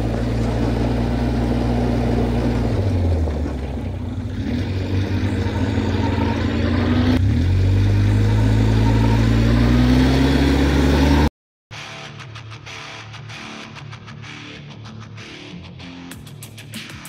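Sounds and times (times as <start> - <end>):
quad bike engine running: 0.0 - 11.3.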